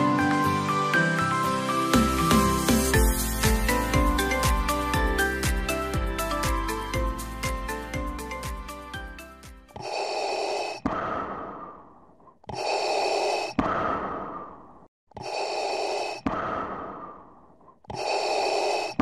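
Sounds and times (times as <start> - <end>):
music: 0.0 - 9.8.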